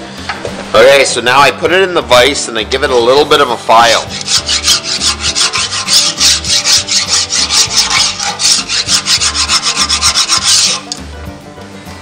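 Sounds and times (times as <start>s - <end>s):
metal file rasping on steel: 3.8s - 11.0s.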